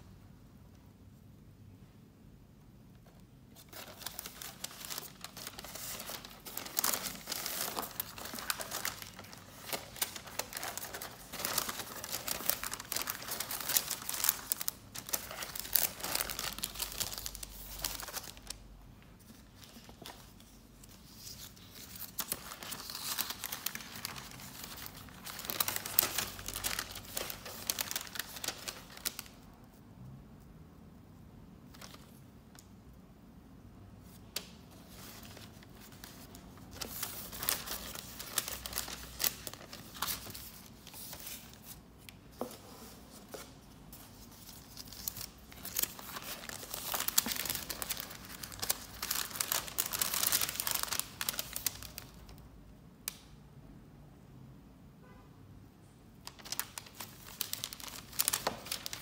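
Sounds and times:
paper sheets rustling: 0:03.6 - 0:18.6, 0:19.2 - 0:29.3, 0:34.4 - 0:52.1, 0:56.3 - 0:59.0.

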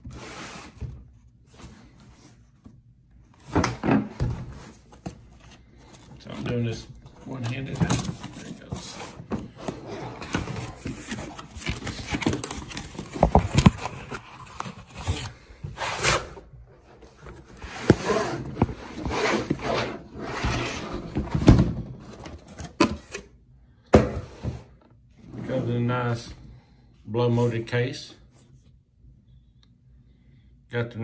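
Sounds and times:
cardboard rustling and scraping: 0:00.0 - 0:02.7, 0:03.4 - 0:22.8.

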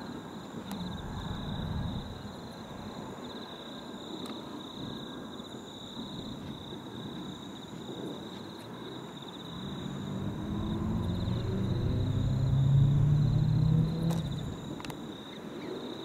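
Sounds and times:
locomotive engine drone: 0:00.7 - 0:02.9, 0:09.4 - 0:15.0.

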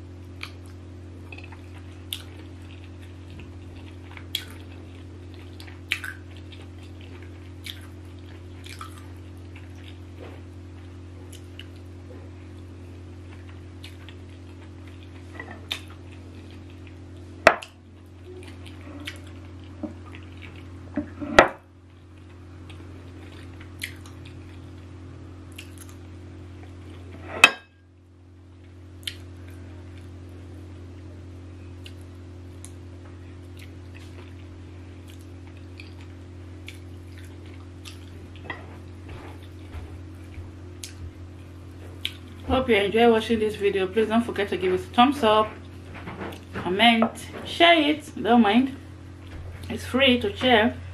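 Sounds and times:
steady low hum: 0:00.0 - 0:50.9
person chewing food: 0:00.4 - 0:20.9, 0:21.9 - 0:24.9, 0:25.5 - 0:27.2, 0:28.6 - 0:30.1, 0:31.7 - 0:32.8, 0:33.4 - 0:42.4.

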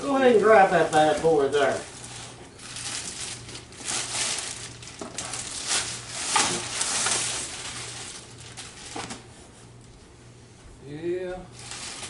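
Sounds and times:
plastic and cardboard rustling: 0:00.0 - 0:09.9, 0:11.5 - 0:12.0.

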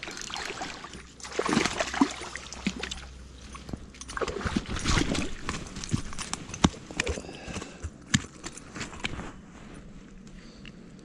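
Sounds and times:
rustling of person moving: 0:03.0 - 0:11.0.

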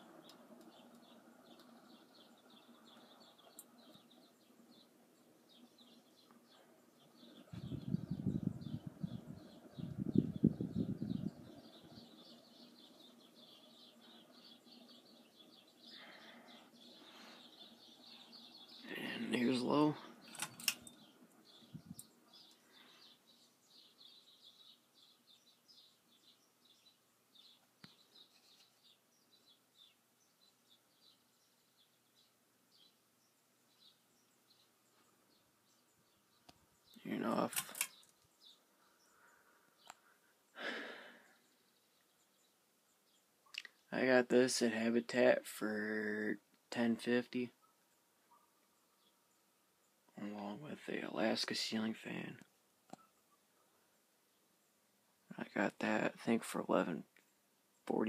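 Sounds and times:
ceiling fan humming: 0:00.0 - 0:41.8
pull-chain switch clicking: 0:20.3 - 0:21.0.

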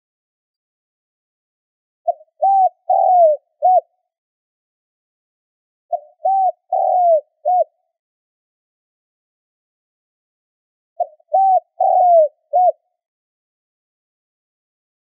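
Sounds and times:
dove cooing: 0:02.1 - 0:03.9, 0:05.9 - 0:07.8, 0:11.0 - 0:12.8.

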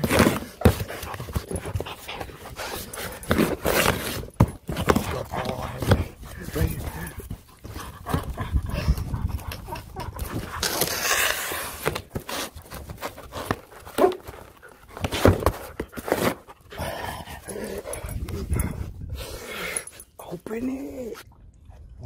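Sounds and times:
dog tearing cardboard box: 0:00.0 - 0:06.6, 0:10.3 - 0:16.5.

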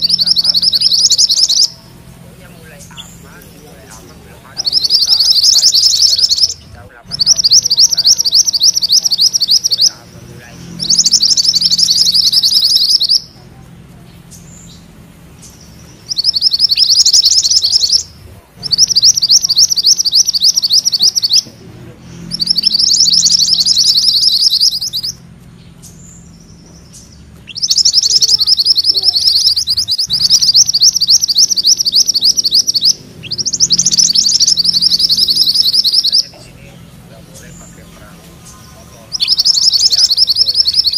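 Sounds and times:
songbird trilling: 0:00.0 - 0:40.9.

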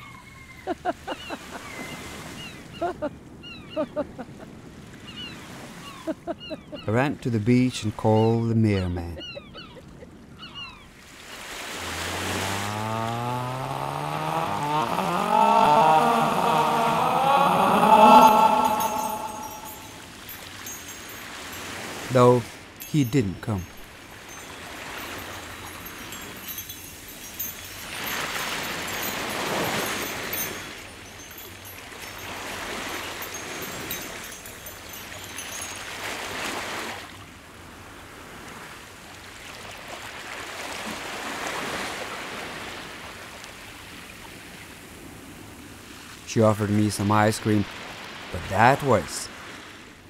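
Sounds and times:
waves breaking on a beach: 0:00.7 - 0:08.1, 0:09.1 - 0:50.0
surf hissing: 0:11.5 - 0:23.7
low drawn-out chanting: 0:12.0 - 0:20.0.

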